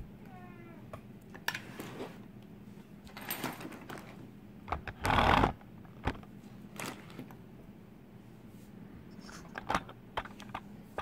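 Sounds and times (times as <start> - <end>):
handling rustles: 1.5 - 4.4.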